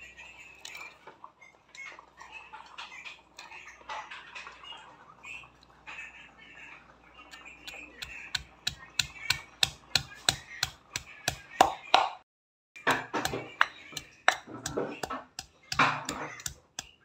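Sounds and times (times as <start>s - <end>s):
stone pestle pounding in mortar: 7.7s - 12.2s, 12.8s - 17.0s.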